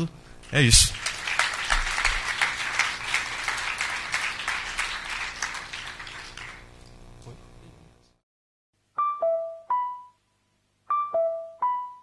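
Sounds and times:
audience applauding: 0.4s - 6.8s.

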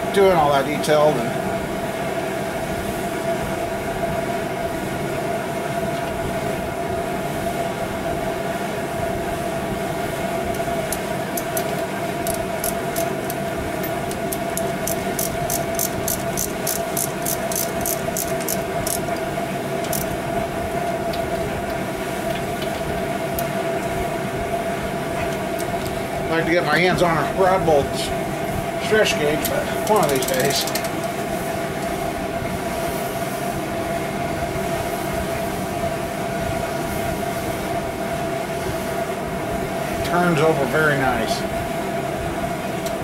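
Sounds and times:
steady machine hum: 0.0s - 43.0s
ratchet wrench clicking: 10.9s - 20.2s, 29.8s - 31.1s.

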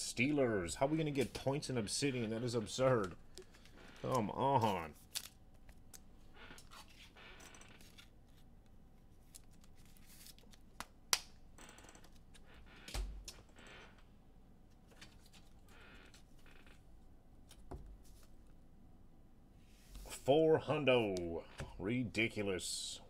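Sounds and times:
hands handling cards and packaging: 2.9s - 7.1s, 7.8s - 11.3s.

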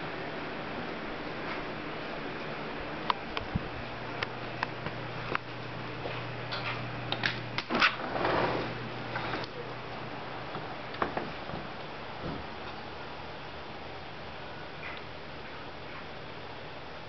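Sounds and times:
steady low hum: 0.0s - 17.0s
wooden door rattling scrape: 7.7s - 9.4s.

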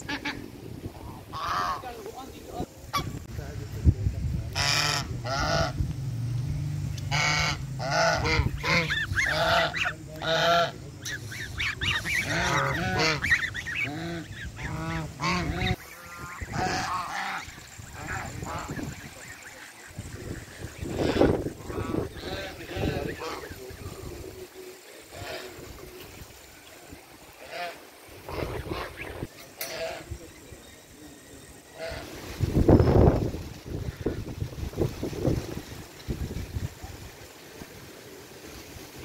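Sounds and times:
geese honking: 0.0s - 2.2s, 4.5s - 5.8s, 7.0s - 30.3s, 31.7s - 32.3s
steady low rumble: 2.8s - 27.4s.

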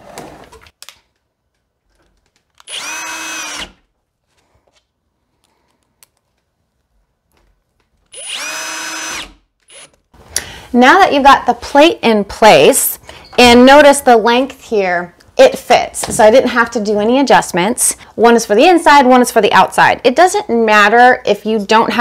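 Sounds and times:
cordless drill motor whine: 2.7s - 3.8s, 8.1s - 9.9s.

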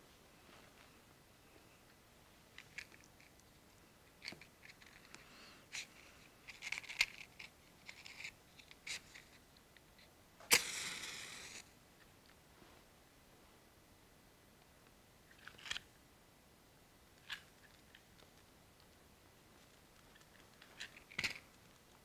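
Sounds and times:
cigarette pack clicks and rustles: 6.5s - 9.4s
match striking and flaring: 10.5s - 11.6s.

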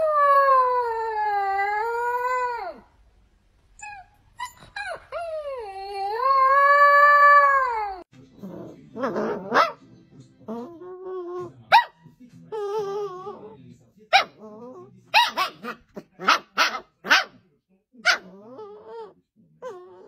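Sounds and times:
puppy howling: 0.0s - 2.9s, 3.8s - 8.1s, 12.5s - 13.6s, 18.2s - 20.0s
puppy yipping: 3.8s - 6.4s, 14.1s - 17.3s
puppy snuffling and whimpering: 12.5s - 13.6s.

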